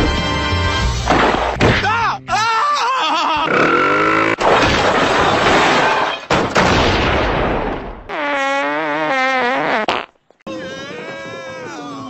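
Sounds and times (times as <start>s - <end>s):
fart through megaphone: 8.1s - 10.1s.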